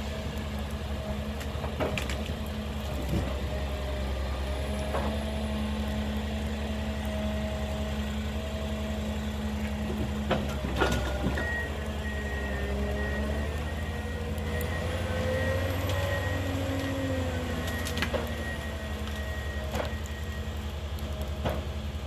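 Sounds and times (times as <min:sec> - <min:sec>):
diesel engine running: 0:00.0 - 0:22.0
hydraulic whine: 0:00.0 - 0:22.0
wooden logs knocking: 0:09.6 - 0:11.6, 0:21.3 - 0:21.8.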